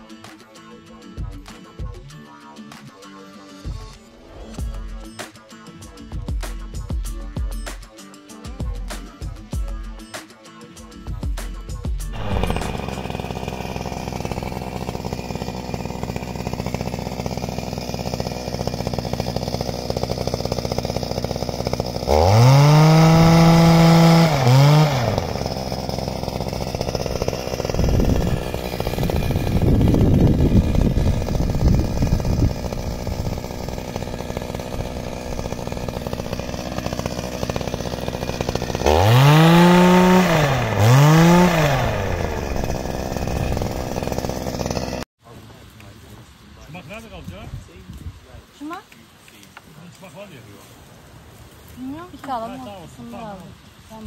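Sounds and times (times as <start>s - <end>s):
two-stroke engine revving: 12.1s - 45.1s.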